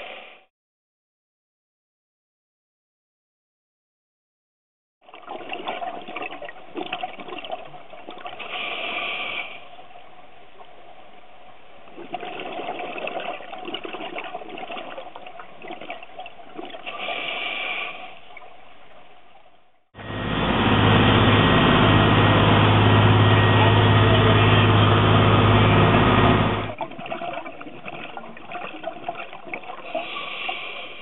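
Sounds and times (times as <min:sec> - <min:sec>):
diver breathing through regulator: 0:00.0 - 0:00.5, 0:08.4 - 0:09.7, 0:16.9 - 0:18.3, 0:29.8 - 0:31.0
exhaled bubbles: 0:05.0 - 0:09.9, 0:11.8 - 0:18.6, 0:26.1 - 0:31.0.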